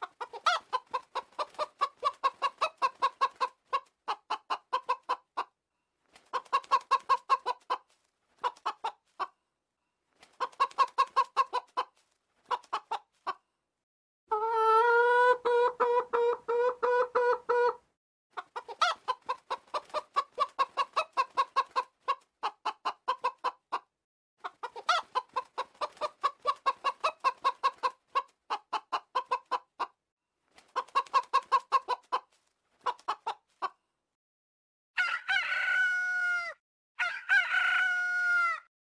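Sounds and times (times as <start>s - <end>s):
drawn-out chicken call: 0.0s - 5.5s, 14.3s - 23.8s, 24.4s - 29.9s, 35.0s - 38.7s
chickens clucking: 0.0s - 5.6s, 6.2s - 9.4s, 10.2s - 13.4s, 14.3s - 30.0s, 30.6s - 33.8s.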